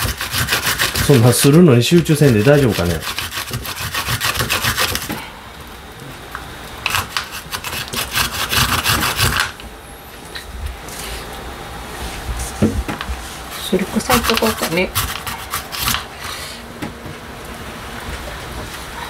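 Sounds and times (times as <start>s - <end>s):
garlic rasping on a grater: 0.0s - 5.2s, 6.9s - 9.5s, 13.5s - 16.4s.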